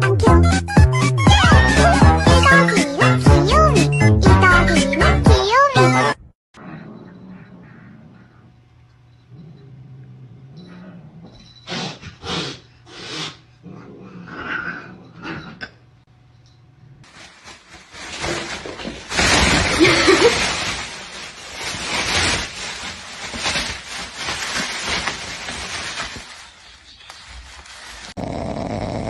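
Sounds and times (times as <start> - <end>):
plastic bag rustling and crinkling: 17.0 - 28.4.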